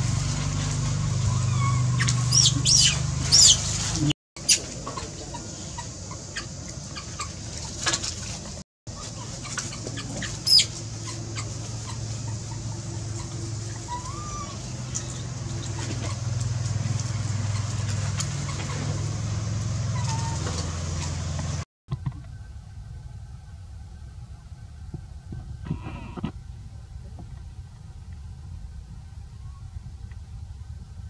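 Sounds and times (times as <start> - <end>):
low engine hum: 0.0 - 31.0
chickens clucking: 1.0 - 21.6
short high squeaks: 1.2 - 4.6.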